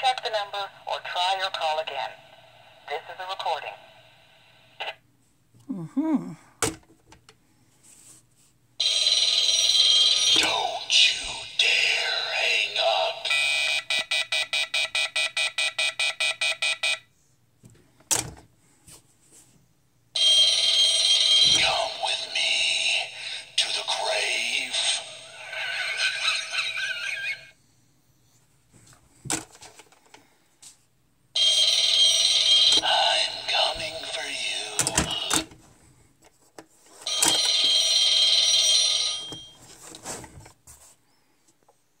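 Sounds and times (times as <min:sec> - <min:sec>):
recorded phone message: 0:00.0 - 0:02.2, 0:02.9 - 0:03.8, 0:09.6 - 0:14.0, 0:20.2 - 0:25.4, 0:31.4 - 0:35.5
shrill phone ringing: 0:08.8 - 0:12.0, 0:20.2 - 0:23.6, 0:31.4 - 0:35.3, 0:37.0 - 0:39.6.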